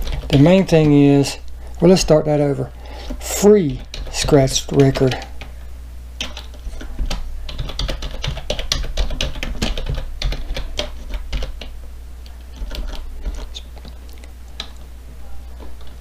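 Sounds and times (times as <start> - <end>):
typing on keyboard: 0.0 - 0.9, 3.7 - 5.2, 6.2 - 11.7, 12.5 - 14.0.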